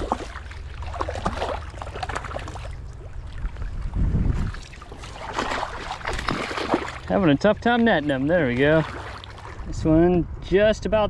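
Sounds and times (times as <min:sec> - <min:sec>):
fish splashing in water: 0:00.0 - 0:09.6
low rumble: 0:00.0 - 0:11.0.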